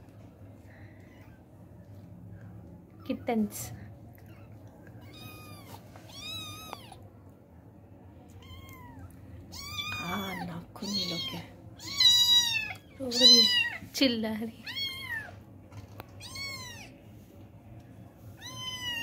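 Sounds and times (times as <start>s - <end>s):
kittens mewing: 8.4s - 13.8s, 14.6s - 17.0s.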